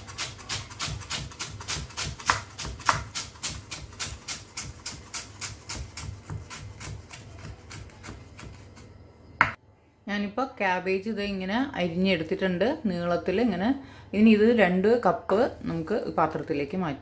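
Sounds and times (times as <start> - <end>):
knife slicing cabbage on board: 0.0 - 8.9.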